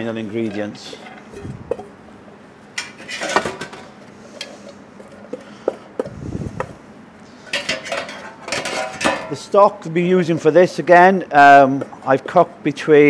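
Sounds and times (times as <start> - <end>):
metal containers clinking: 2.8 - 4.0, 7.4 - 9.5.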